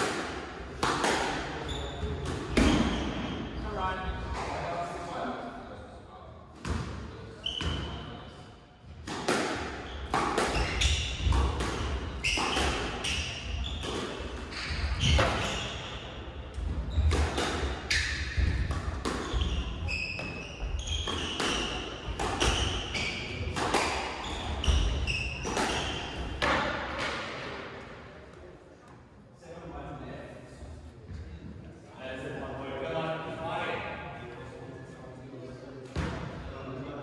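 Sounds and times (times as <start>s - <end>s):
squash ball hits: 0.0s - 1.6s, 2.2s - 3.3s, 9.0s - 15.6s, 16.6s - 19.6s, 20.2s - 27.5s.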